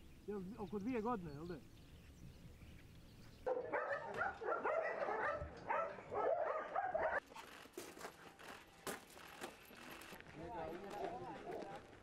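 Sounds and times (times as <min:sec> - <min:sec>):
dogs barking and yelping: 0:03.4 - 0:07.2.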